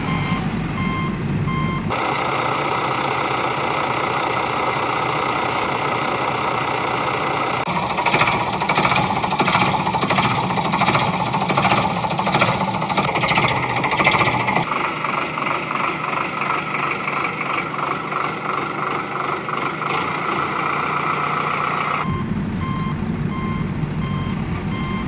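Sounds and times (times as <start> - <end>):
reversing beeper: 0.0 - 2.8, 7.7 - 14.8, 20.9 - 25.0
engine rumble: 0.0 - 25.0
diesel engine knocking chug: 0.8 - 25.0.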